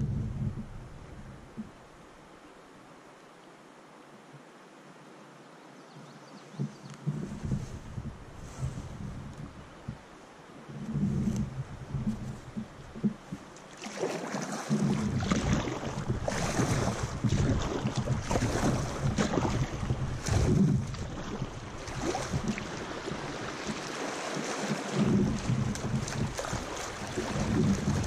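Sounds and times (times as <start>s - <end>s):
wind buffeting microphone: 0.0s - 1.8s, 6.5s - 10.1s, 10.7s - 13.5s, 14.7s - 28.0s
water rushing and splashing: 6.5s - 28.0s.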